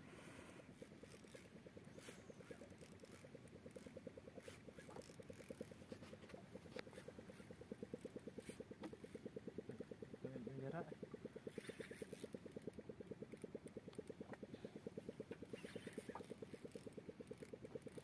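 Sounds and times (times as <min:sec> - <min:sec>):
mechanical pulsing: 0:00.0 - 0:18.0.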